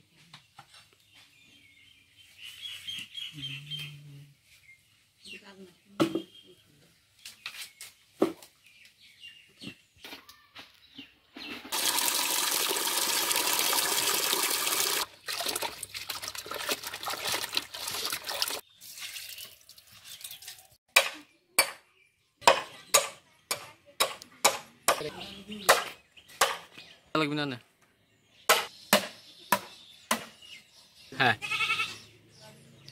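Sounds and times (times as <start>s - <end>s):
water running into bucket: 11.7s - 20.7s
hands sloshing water: 13.6s - 20.6s
machete chopping bamboo: 20.9s - 21.8s, 25.7s - 26.7s, 28.5s - 30.3s.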